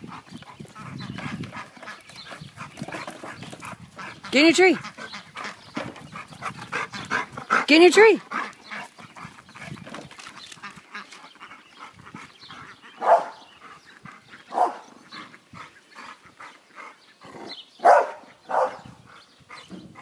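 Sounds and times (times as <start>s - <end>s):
dog barking: 13.0s - 13.5s, 14.5s - 14.9s, 17.8s - 18.9s.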